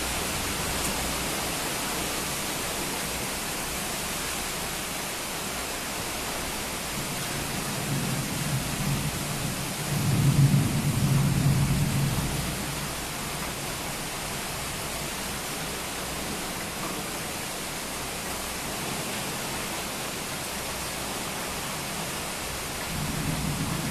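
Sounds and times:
heavy rain: 0.0s - 23.9s
thunder rumbling: 7.8s - 12.7s, 22.9s - 23.9s.

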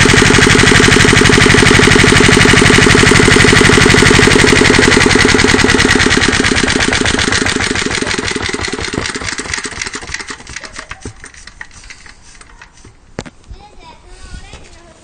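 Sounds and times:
diesel engine running down to stop: 0.0s - 10.0s.

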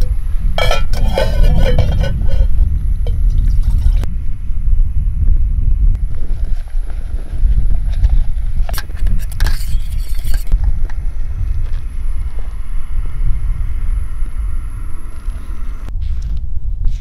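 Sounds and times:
spoon scraping metal pot: 0.0s - 3.2s, 8.7s - 10.6s
wind buffeting microphone: 0.0s - 17.0s.

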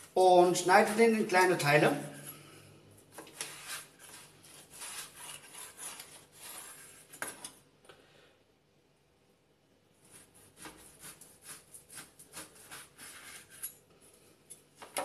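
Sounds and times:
cleaver slicing meat: 10.1s - 13.6s.

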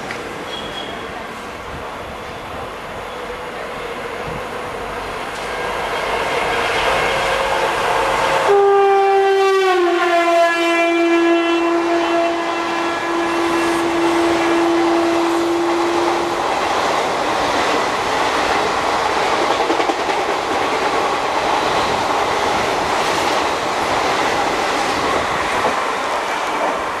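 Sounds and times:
train coaches rumbling past: 0.0s - 27.0s
electric locomotive horn: 7.0s - 16.4s.

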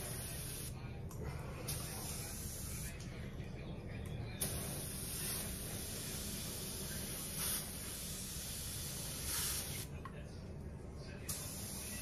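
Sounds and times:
spray gun hissing: 4.4s - 9.9s, 11.3s - 12.0s.

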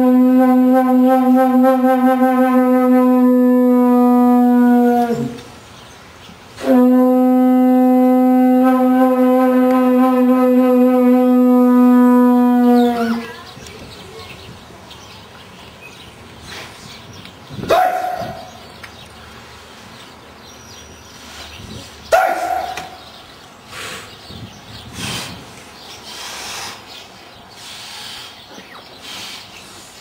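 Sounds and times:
loud shouted calls: 6.6s - 14.7s.

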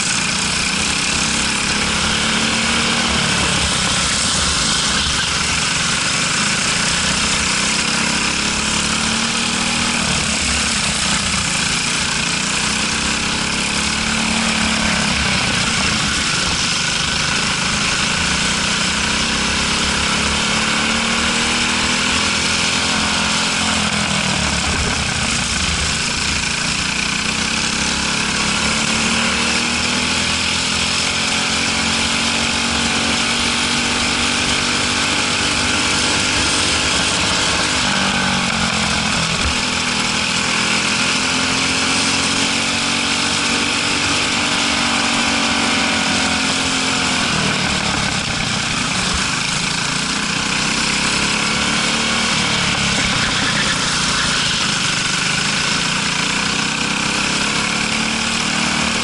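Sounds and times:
steady rush of noise: 0.0s - 29.0s, 42.3s - 59.0s
kart engine revving: 0.0s - 59.0s.

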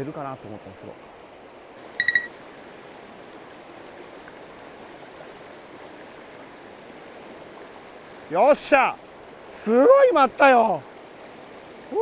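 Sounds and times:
high pips: 2.0s - 2.3s.

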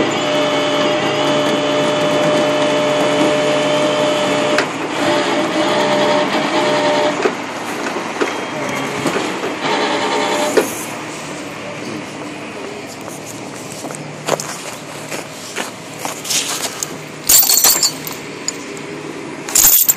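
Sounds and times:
winch drive whining: 0.0s - 19.9s.

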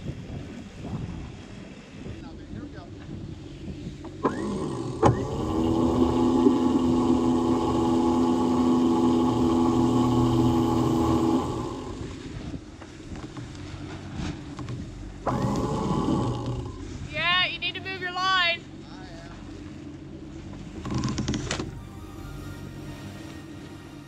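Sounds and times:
electric winch motor running: 4.1s - 12.5s, 15.2s - 17.1s.

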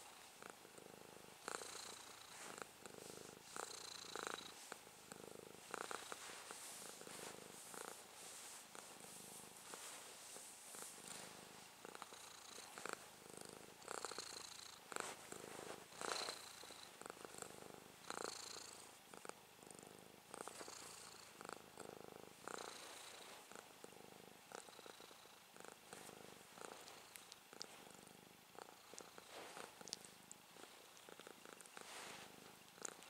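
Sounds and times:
cat purring: 0.0s - 33.0s
fingers rustling through fur: 5.6s - 13.0s, 28.7s - 33.0s.

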